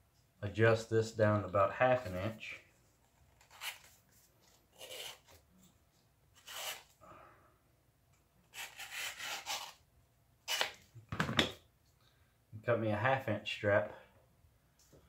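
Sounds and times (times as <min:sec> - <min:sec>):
leather strap rasping through cutter: 0:04.8 - 0:05.4, 0:08.6 - 0:09.8.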